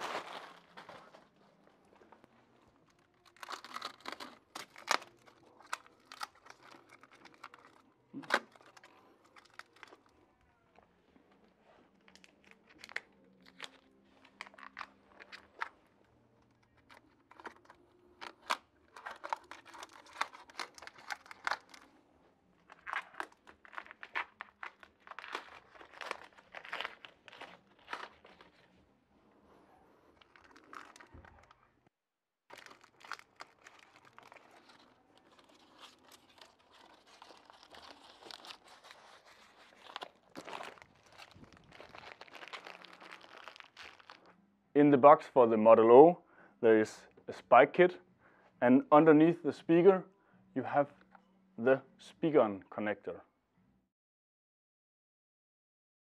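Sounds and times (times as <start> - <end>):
plastic wrap crinkling and tearing: 0.0 - 2.1, 2.7 - 10.2, 11.6 - 22.0, 22.6 - 28.8, 29.8 - 31.7, 32.5 - 44.3.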